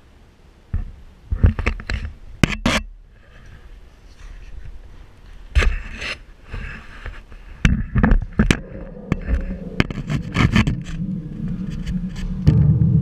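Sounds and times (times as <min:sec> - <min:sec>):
steady low hum: 0:00.0 - 0:13.0
camera knocking and scraping: 0:00.8 - 0:02.9, 0:05.5 - 0:12.8.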